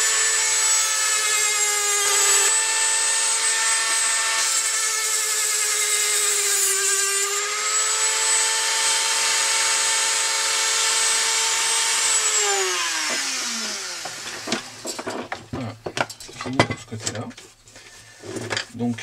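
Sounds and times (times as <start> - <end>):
rotary tool whining: 0.0 - 15.1.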